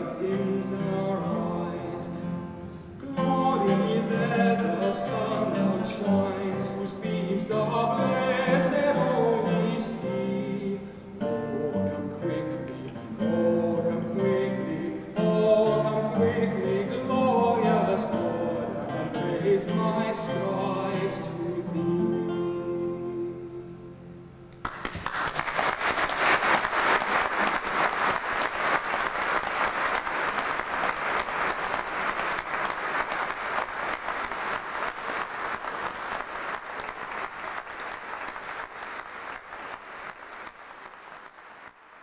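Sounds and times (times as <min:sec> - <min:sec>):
voice and guitar song: 0:00.0 - 0:24.9
audience applauding: 0:24.6 - 0:42.0.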